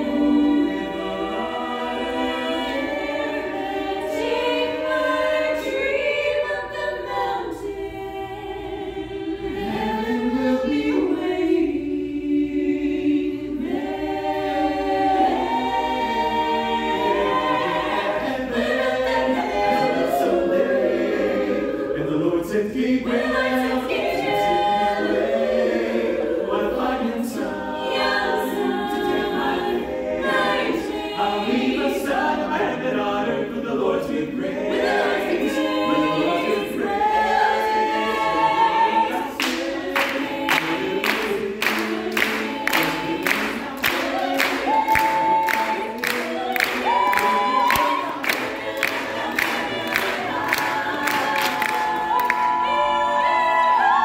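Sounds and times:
a cappella group singing: 0.0s - 54.0s
hand claps: 39.4s - 52.5s.

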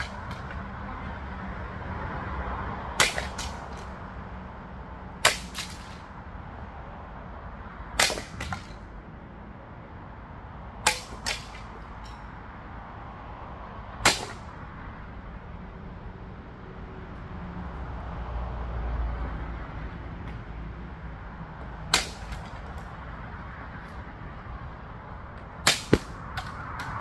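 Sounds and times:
sword cutting target: 3.0s - 3.8s, 8.0s - 8.8s, 14.1s - 14.5s.

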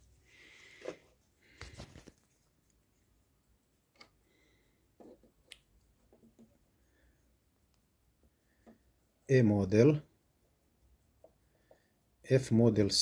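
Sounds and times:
soft handling noises: 0.0s - 9.9s.

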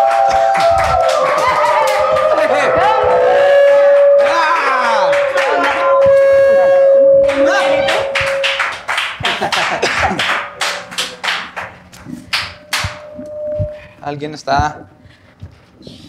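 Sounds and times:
studio audience clapping: 0.0s - 13.1s
show music with held note: 2.0s - 13.9s.

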